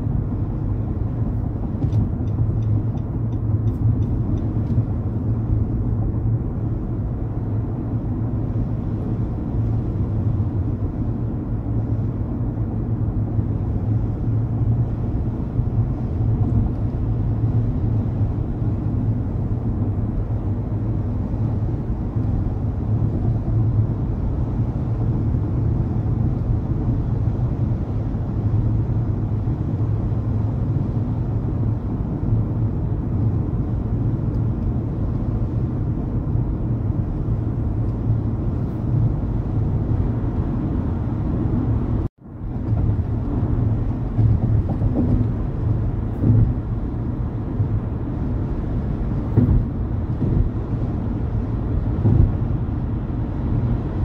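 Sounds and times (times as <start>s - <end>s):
car driving on highway: 0.0s - 54.0s.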